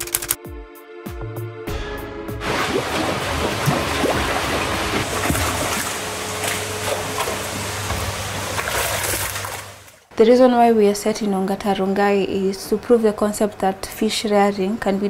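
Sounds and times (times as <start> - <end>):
fish thrashing at surface: 2.4 - 9.9
water splashing and churning: 2.4 - 10.1
steady low hum: 2.4 - 10.3.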